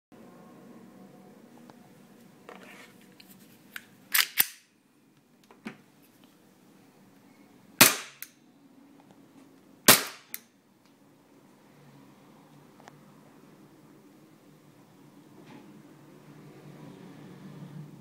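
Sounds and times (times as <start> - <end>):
airsoft pistol shots: 7.8 - 8.3, 9.9 - 10.4.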